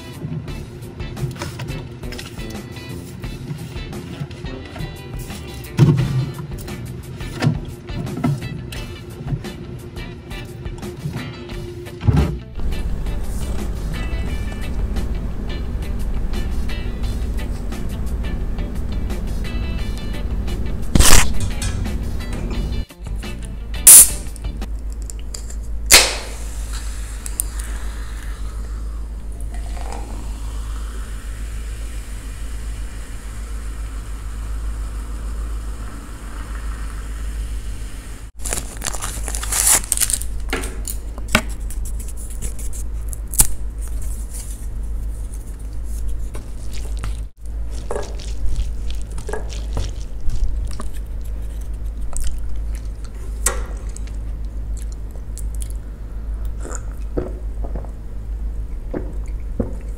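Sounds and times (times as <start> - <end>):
can pull tab snapping open: 23.9 - 24.2, 25.3 - 26.3
fizzy drink pouring into glass: 29.5 - 31.2
packet crinkling: 38.4 - 40.5, 46.5 - 53.0.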